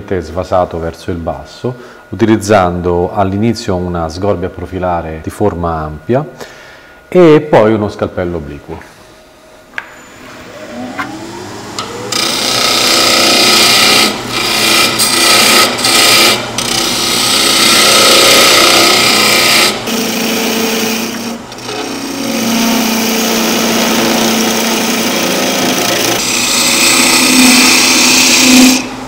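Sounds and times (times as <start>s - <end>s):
wood lathe motor whining: 9.8s - 29.0s.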